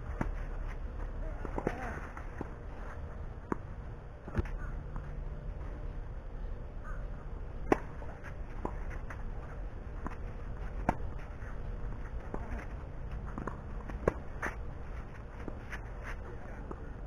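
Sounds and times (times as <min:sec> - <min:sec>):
racquet striking tennis ball: 0:07.6 - 0:08.9.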